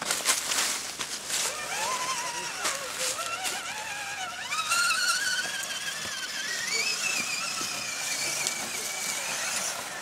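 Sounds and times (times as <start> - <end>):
electric motor whining: 1.2 - 10.0.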